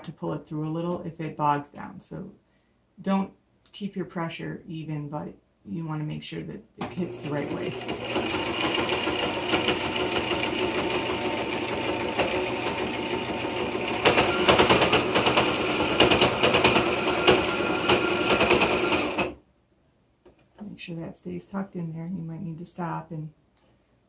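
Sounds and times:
sewing machine stitching: 6.8s - 19.4s.

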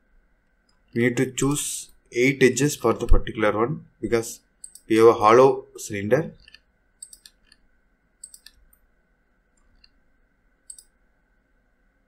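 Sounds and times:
computer mouse clicks: 4.6s - 4.9s, 6.4s - 8.9s, 9.6s - 10.0s, 10.6s - 11.0s.

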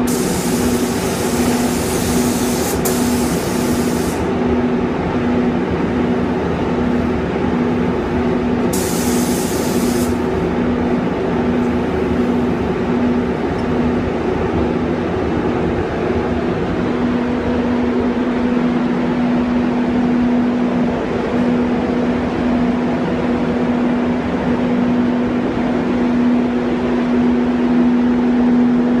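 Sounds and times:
compressed air hiss: 0.0s - 4.3s, 8.7s - 10.3s
ventilation hum and rushing air: 0.0s - 29.0s.

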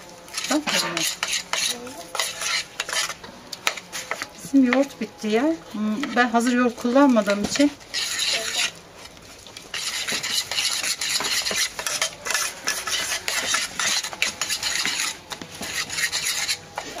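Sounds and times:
utensil scraping metal bowl: 0.0s - 17.0s.

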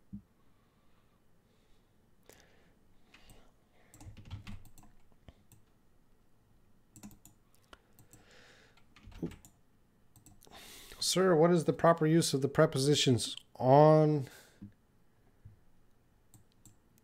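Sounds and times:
computer mouse clicking: 3.1s - 5.7s, 6.9s - 8.2s, 8.8s - 10.5s, 16.3s - 17.0s
computer keyboard tapping: 3.9s - 5.6s, 7.0s - 7.4s, 8.8s - 9.6s, 10.2s - 10.4s.

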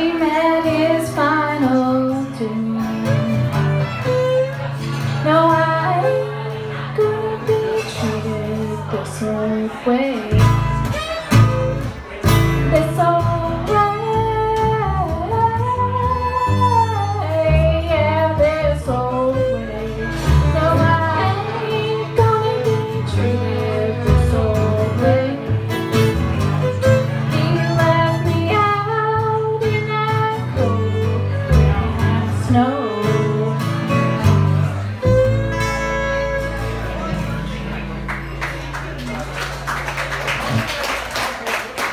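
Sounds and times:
woman singing: 0.0s - 3.3s, 5.2s - 10.6s, 12.7s - 25.6s, 27.3s - 34.1s
violin: 0.0s - 38.9s
double bass: 0.0s - 40.7s
acoustic guitar: 0.0s - 41.8s.

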